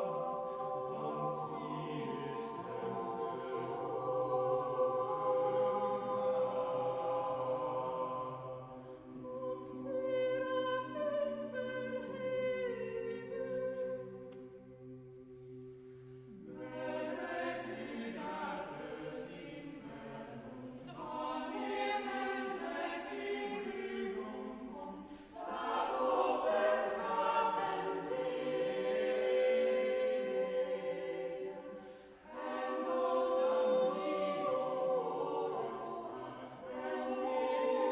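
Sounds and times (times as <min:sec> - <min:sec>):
a cappella choir singing: 0:00.0 - 0:37.9.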